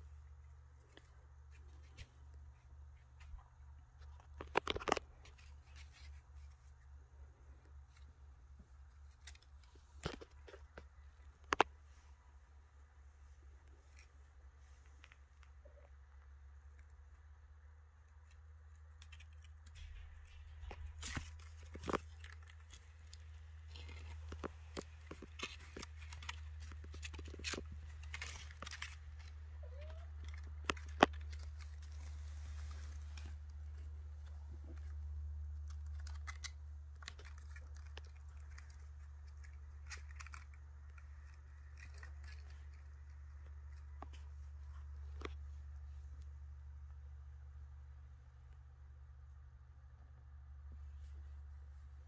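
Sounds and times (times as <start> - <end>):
steady low hum: 0.0 - 52.0
kittens' claws scratching basket: 0.5 - 12.0, 18.0 - 46.0.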